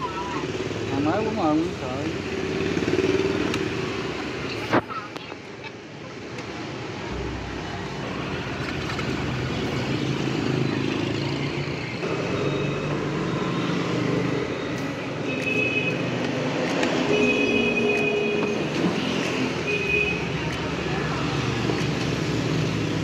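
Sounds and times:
traffic rumble: 0.0s - 23.0s.

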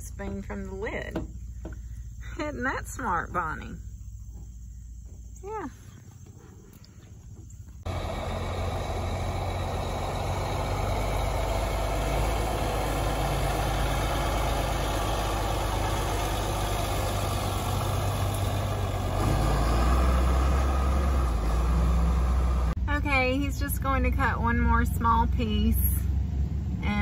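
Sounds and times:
tractor engine hum: 0.0s - 27.0s
mower cutting hay: 7.9s - 22.8s.

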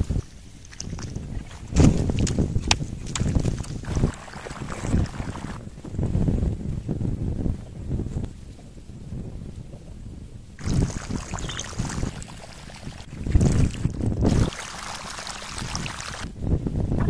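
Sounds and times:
wind on microphone: 0.0s - 17.0s
water running and splashing: 3.0s - 5.6s, 10.6s - 16.3s.

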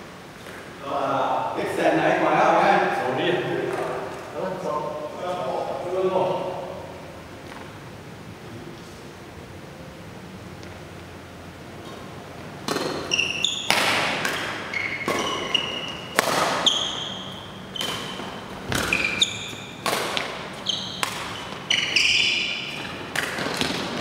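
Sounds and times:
shoes squeaking on court floor: 11.8s - 24.0s
racket hitting shuttlecock: 12.6s - 24.0s.

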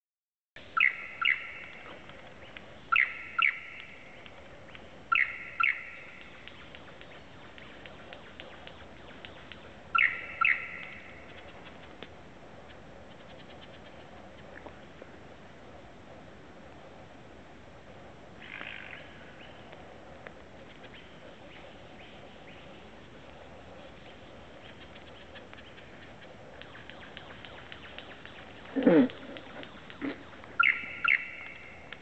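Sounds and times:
lyrebird ringing notes: 30.6s - 31.8s.

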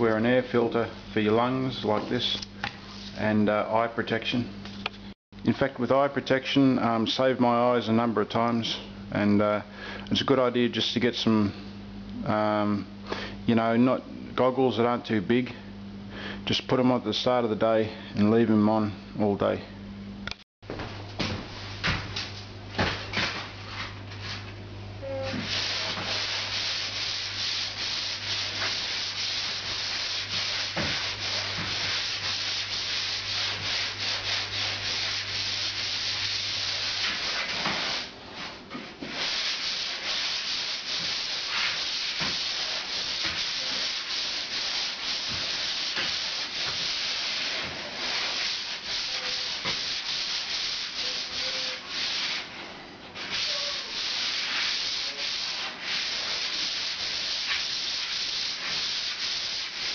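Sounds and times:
sanding plaster ceiling: 25.3s - 38.1s, 39.0s - 52.6s, 53.2s - 59.9s.

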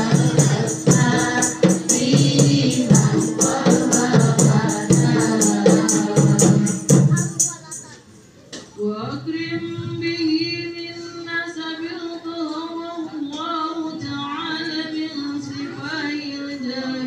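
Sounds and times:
women singing slow melody: 0.0s - 7.1s, 11.1s - 17.0s.

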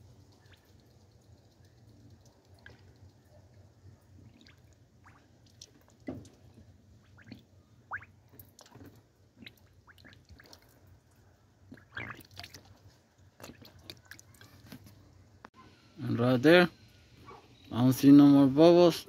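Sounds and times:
liquid dripping: 0.0s - 14.5s
small bubbles popping: 4.2s - 6.3s, 7.0s - 8.8s, 9.4s - 10.8s, 11.7s - 12.7s.

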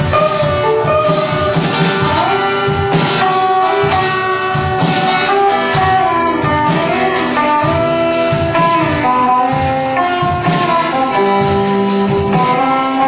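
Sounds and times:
electric guitars: 0.0s - 13.0s
steady drum beat: 0.0s - 13.0s.

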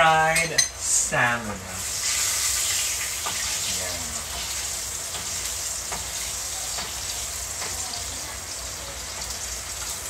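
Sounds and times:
fish sizzling in a pan: 1.1s - 10.0s
utensil clicking against pan: 4.3s - 7.9s.

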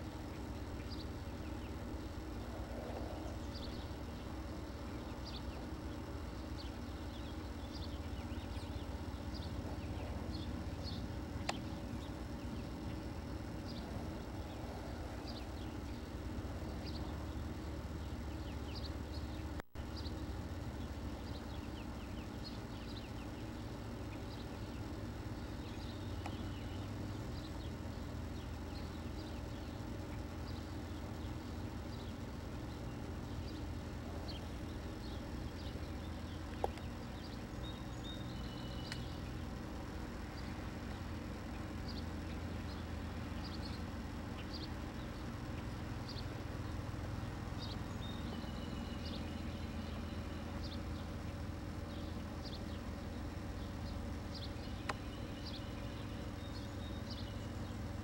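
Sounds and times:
small birds chirping: 0.0s - 58.0s
steady low rumble: 0.0s - 58.0s.

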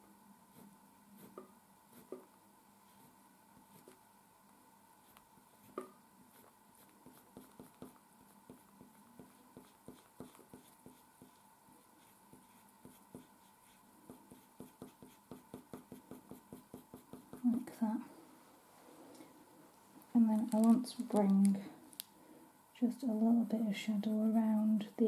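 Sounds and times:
pencil strokes on paper: 0.5s - 2.2s, 5.0s - 17.7s.

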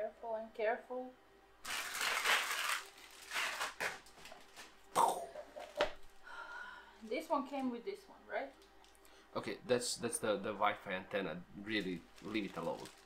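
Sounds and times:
packaging rustling: 1.6s - 4.8s, 11.7s - 13.0s.

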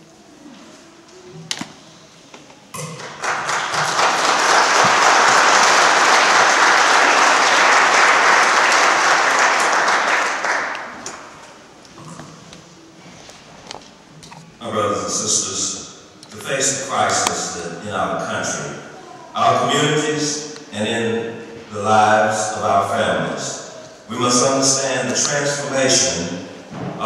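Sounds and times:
audience applauding: 2.9s - 11.4s.

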